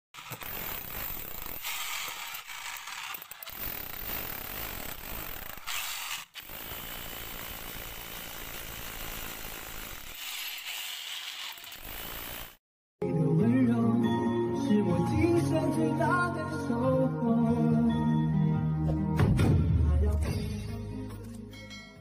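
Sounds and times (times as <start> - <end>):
drill drilling into concrete: 0.2 - 12.6
jackhammer breaking concrete: 0.2 - 12.6.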